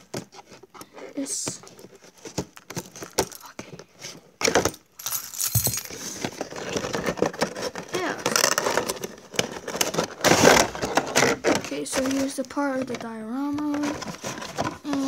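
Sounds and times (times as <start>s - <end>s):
packaging scraping and rustling: 1.7s - 15.0s
keys jangling on keyring: 5.0s - 6.0s.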